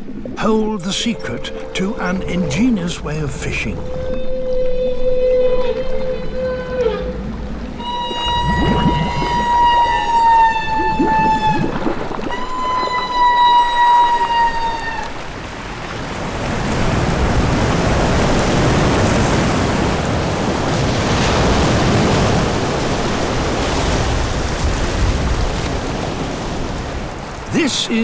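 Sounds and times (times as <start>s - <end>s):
churning splashing water: 0.0s - 28.0s
humpback whale call: 0.8s - 15.5s.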